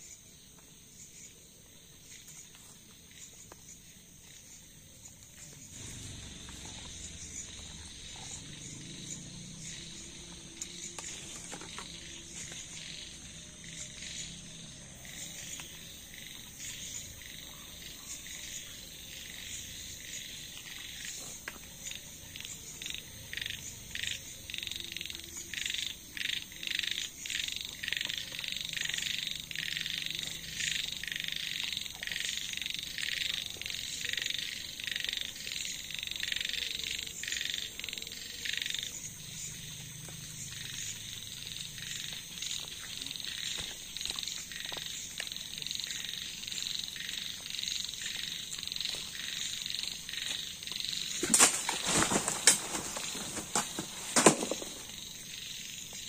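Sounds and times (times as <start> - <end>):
frogs calling: 0.0 - 56.0.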